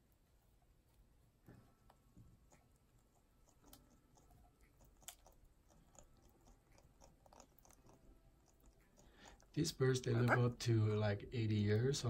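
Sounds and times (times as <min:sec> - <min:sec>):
parrots chewing with small clicks: 0:00.0 - 0:10.5.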